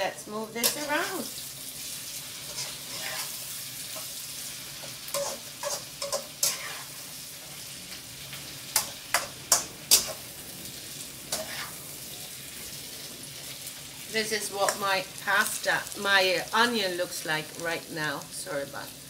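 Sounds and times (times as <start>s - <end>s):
onion sizzling in a wok: 0.0s - 19.0s
utensil clicking and scraping pan: 4.8s - 6.9s.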